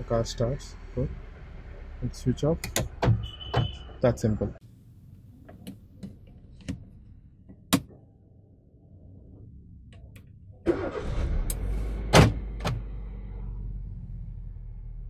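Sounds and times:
car engine starting and running: 8.9 - 15.0.

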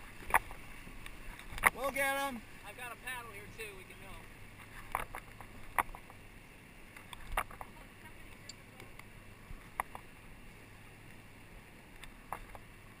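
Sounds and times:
choppy river water rushing: 0.0 - 13.0.

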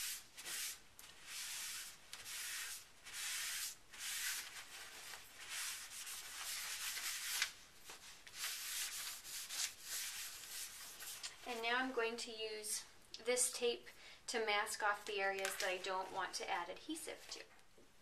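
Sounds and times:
paper towel rubbing on plastic mat: 0.0 - 11.3.

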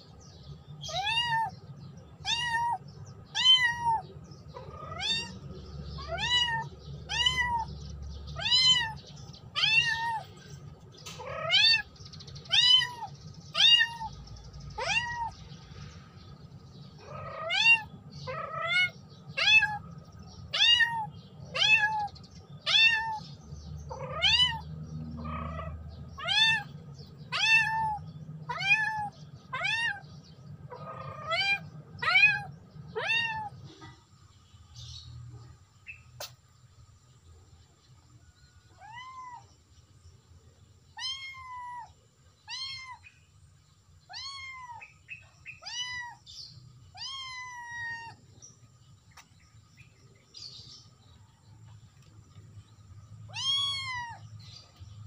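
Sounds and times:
kitten meowing: 0.9 - 1.5, 2.2 - 5.4, 6.0 - 7.7, 8.4 - 9.0, 9.6 - 10.3, 12.5 - 14.1, 14.8 - 15.3, 17.0 - 19.8, 20.5 - 23.2, 23.9 - 24.6, 25.2 - 26.7, 27.3 - 30.0, 30.8 - 33.6, 38.8 - 39.5, 41.0 - 41.9, 42.5 - 43.0, 44.1 - 44.9, 45.6 - 46.2, 47.0 - 48.2, 53.3 - 54.2.

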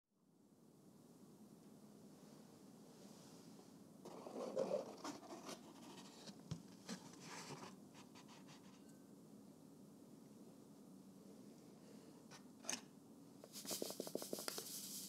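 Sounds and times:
egg carton crinkly rustle: 4.1 - 8.8, 13.4 - 15.0.

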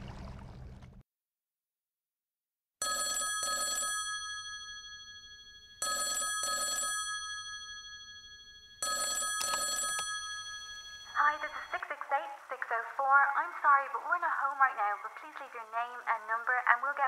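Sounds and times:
telephone double ring: 2.8 - 11.8.

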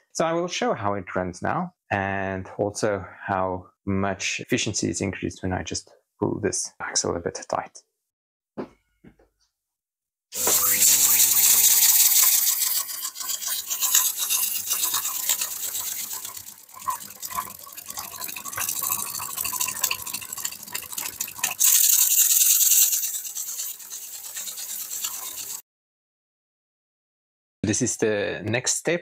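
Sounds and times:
steam engine hissing and clicking: 10.4 - 25.6.

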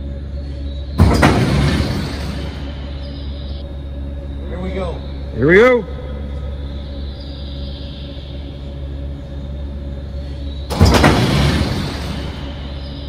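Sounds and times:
steady low hum: 0.0 - 13.0
landing gear slamming into place: 1.0 - 2.9, 10.7 - 12.6.

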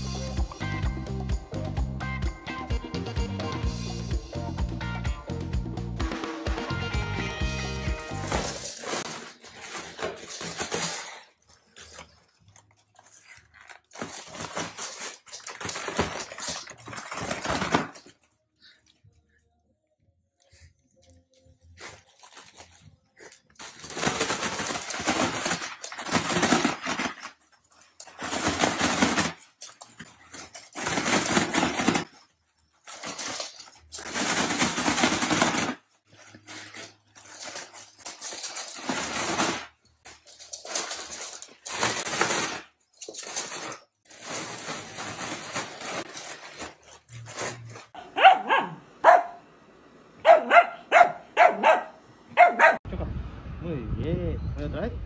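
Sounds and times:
foil balloon crinkling: 7.4 - 18.8, 21.0 - 48.0
dogs barking: 48.0 - 49.5, 50.2 - 52.8.

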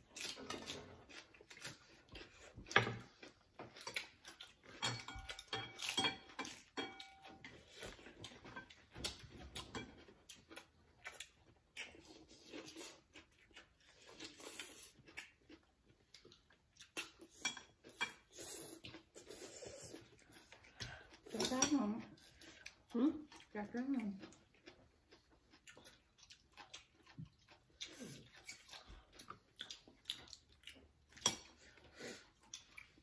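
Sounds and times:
chopsticks clinking on ceramic bowls: 3.8 - 8.8.

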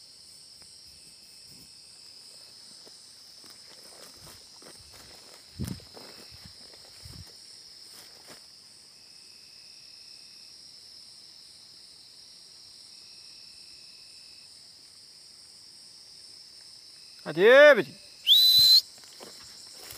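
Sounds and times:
night insects chorus: 0.0 - 19.9
footsteps rustling through grass: 1.1 - 8.7, 18.9 - 19.9.

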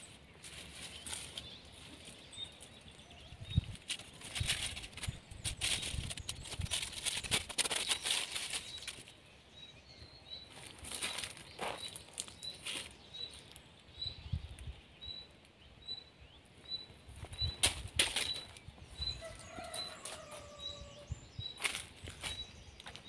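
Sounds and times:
dry leaves rustling and crunching: 0.0 - 9.3, 10.5 - 13.7, 17.2 - 20.9, 21.6 - 23.0.

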